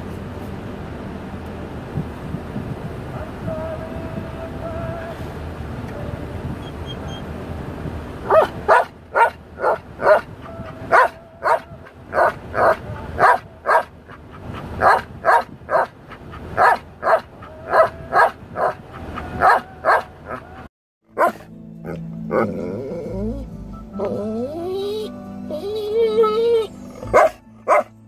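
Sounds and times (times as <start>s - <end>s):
dog yelping howls: 8.3s - 13.8s, 16.6s - 21.3s.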